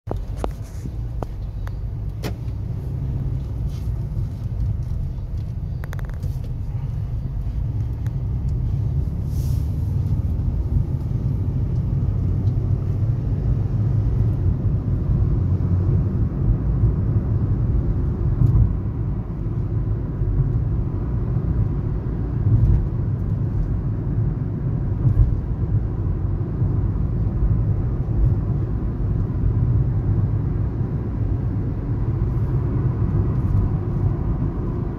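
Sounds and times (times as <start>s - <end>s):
engine and tyre rumble: 0.0s - 34.9s
car bumps: 2.2s - 2.6s.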